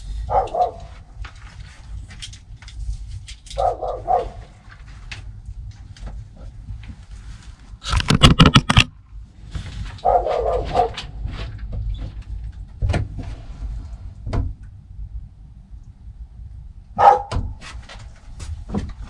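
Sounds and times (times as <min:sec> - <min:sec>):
dog barking: 0:00.3 - 0:00.9, 0:03.6 - 0:04.5, 0:10.0 - 0:11.1, 0:17.0 - 0:17.5
dog yelp: 0:00.3 - 0:00.9, 0:03.6 - 0:04.5, 0:10.0 - 0:11.1, 0:17.0 - 0:17.4.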